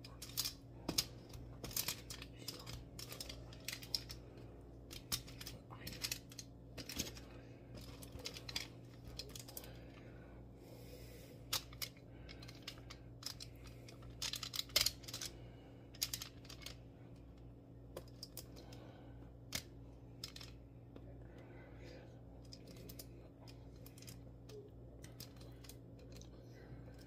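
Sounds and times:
aluminium foil crinkling: 0.0 - 4.3, 4.9 - 9.9, 11.5 - 15.3.

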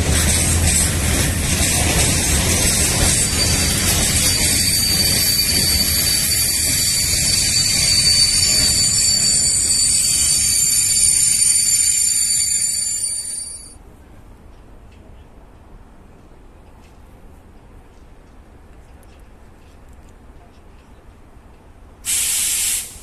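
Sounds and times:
high-pitched whine: 2.2 - 13.7.

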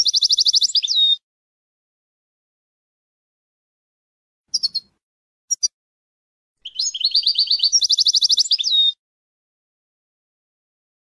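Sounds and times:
goldfinch singing: 0.0 - 1.2, 4.5 - 4.9, 5.5 - 5.7, 6.6 - 9.0.

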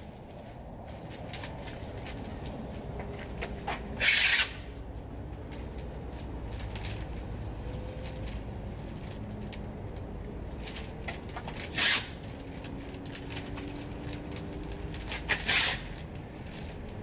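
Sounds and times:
low outdoor rumble: 0.0 - 17.0
sandpaper rubbing on painted metal: 4.0 - 4.6, 11.7 - 12.2, 15.2 - 15.9.

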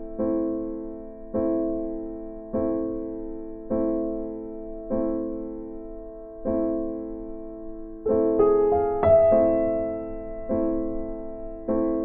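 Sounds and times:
slow gentle piano chords: 0.0 - 12.0.

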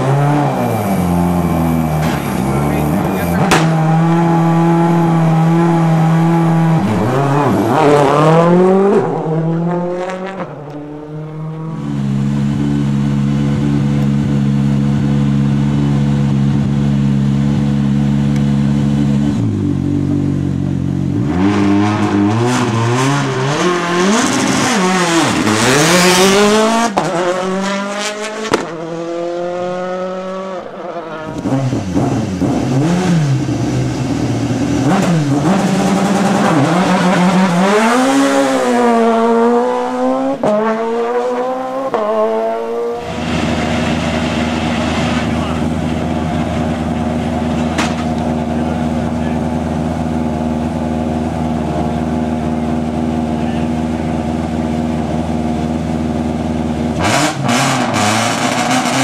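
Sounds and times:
rally cars at full throttle: 0.0 - 59.0
rally car engine idling: 10.3 - 21.2, 43.1 - 57.0.

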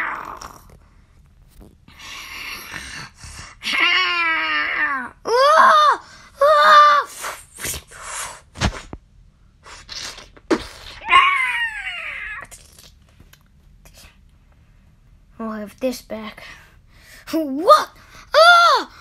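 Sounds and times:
creature wailing: 0.0 - 0.7, 3.6 - 7.0, 11.0 - 12.5
creature screeching: 11.0 - 12.6.

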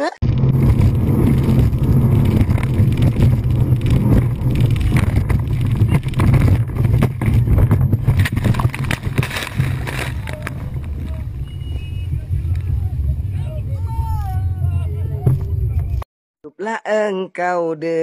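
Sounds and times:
wind rush: 0.2 - 16.0
water crashing over boat: 0.4 - 12.1.

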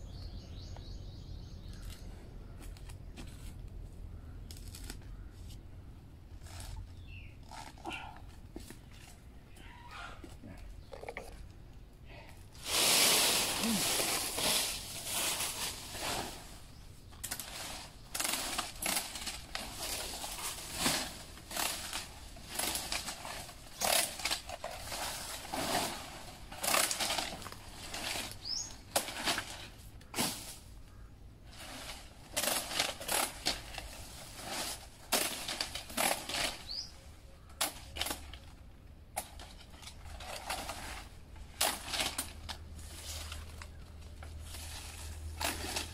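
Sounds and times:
scraping rustle: 12.6 - 30.8, 31.5 - 36.9, 39.3 - 45.9.

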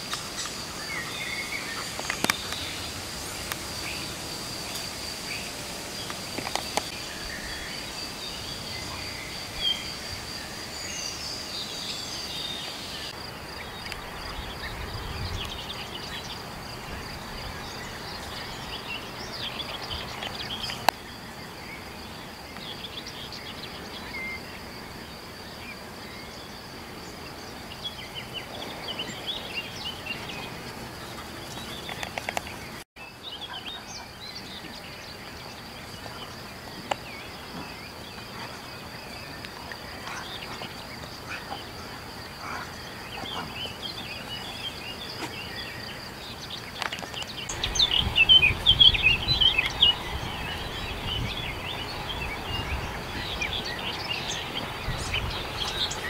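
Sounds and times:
songbirds chirping and singing: 0.0 - 56.0
steady high hiss: 0.0 - 56.0
wind rumble on microphone: 13.6 - 18.8, 47.5 - 56.0.

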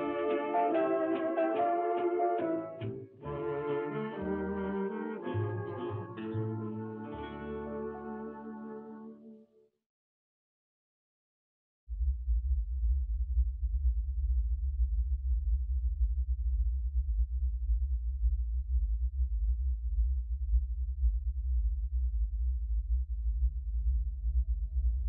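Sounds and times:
soft held musical tones: 0.0 - 9.4.

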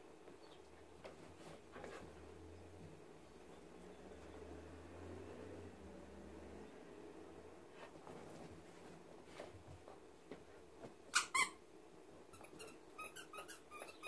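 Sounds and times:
squeaky dog toy squeaks: 11.1 - 11.6, 12.3 - 14.0.

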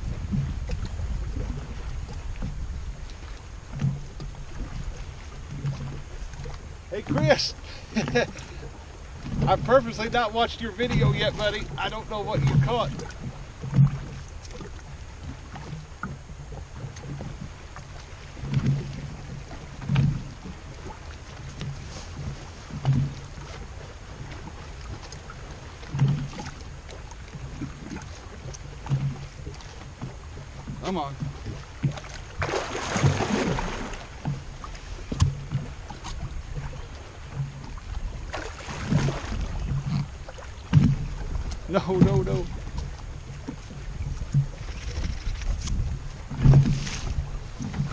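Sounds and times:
water lapping against boat hull: 0.0 - 47.9
wind on microphone: 0.0 - 47.9
low thumps: 10.8 - 17.6, 21.4 - 23.5, 30.0 - 47.9.

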